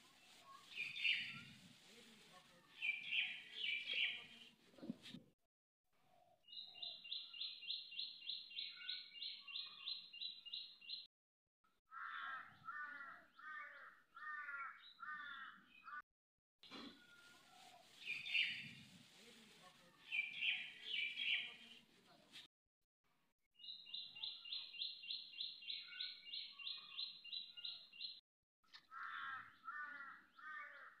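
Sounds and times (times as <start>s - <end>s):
birds chirping high: 0.6s - 1.6s, 2.8s - 4.4s, 18.0s - 18.9s, 23.6s - 28.2s.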